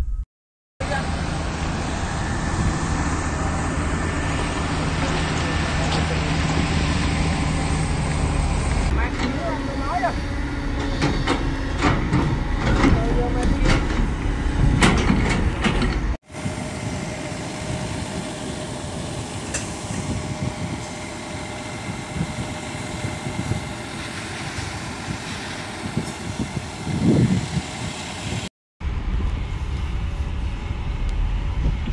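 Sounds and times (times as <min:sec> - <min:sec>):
excavator rumble: 0:00.8 - 0:31.9
truck engine running: 0:00.8 - 0:31.9
excavator knocks and clanks: 0:10.8 - 0:16.2.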